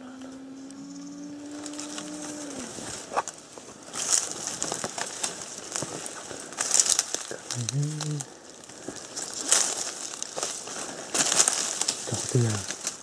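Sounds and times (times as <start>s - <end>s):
long low call: 0.0s - 3.1s
rustling leaves: 0.0s - 13.0s
twigs snapping underfoot: 1.5s - 13.0s.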